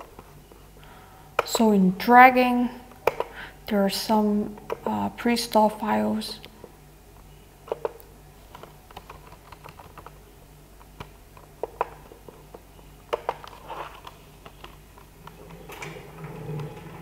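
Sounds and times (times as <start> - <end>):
faint low hum: 0.0 - 17.0
computer keyboard and mouse clicks: 7.7 - 10.2, 10.8 - 16.7.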